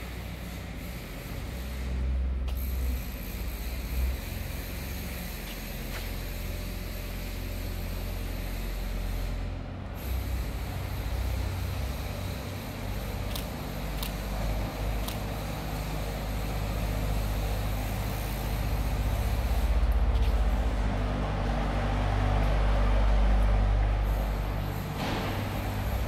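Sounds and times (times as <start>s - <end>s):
heavy vehicle engine rumble: 0.0s - 26.0s.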